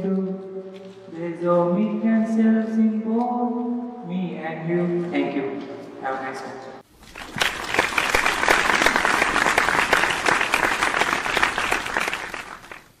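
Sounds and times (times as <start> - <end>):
audience applauding: 7.0 - 13.0.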